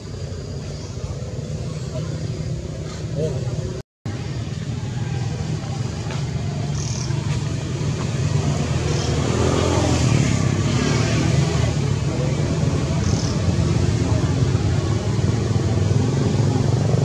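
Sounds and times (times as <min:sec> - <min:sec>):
low engine rumble: 0:00.0 - 0:10.7.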